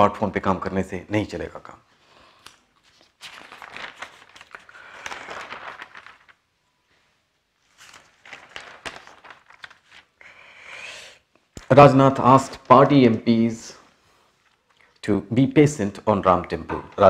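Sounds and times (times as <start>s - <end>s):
newspaper pages rustling: 2.4s - 10.3s, 11.5s - 13.4s.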